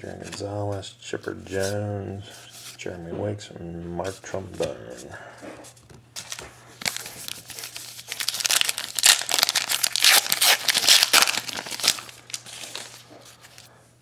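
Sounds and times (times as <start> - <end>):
wrapper torn and crinkled: 6.2 - 13.0.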